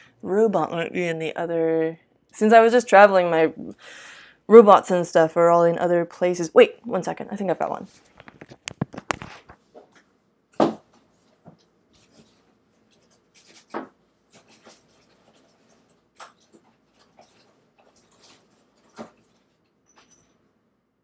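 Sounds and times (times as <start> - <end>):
rummaging clicks and rustles: 11.0 - 20.4.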